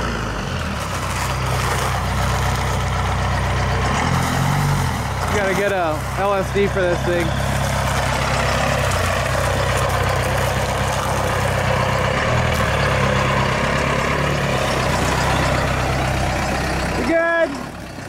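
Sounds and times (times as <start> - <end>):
pickup truck engine idling: 0.0 - 18.0.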